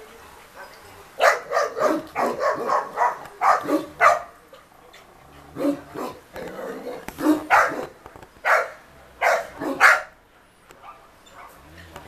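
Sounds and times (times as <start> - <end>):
dog barking: 1.2 - 4.3, 7.2 - 10.2.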